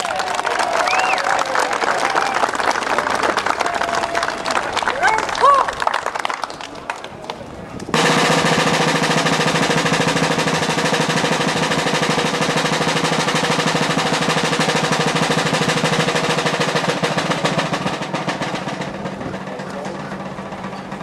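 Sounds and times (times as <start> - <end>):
field drums rolling: 7.8 - 21.0.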